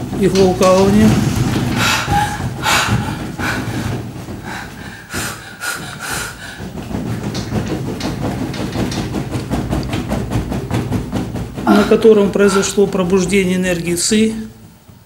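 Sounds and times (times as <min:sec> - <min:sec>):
woman breathing hard gasping: 0:01.7 - 0:07.2.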